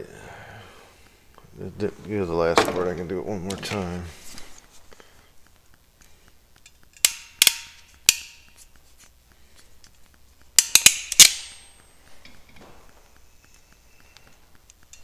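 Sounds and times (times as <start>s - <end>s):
ratcheting crimper clicking: 5.5s - 8.8s, 9.8s - 12.4s.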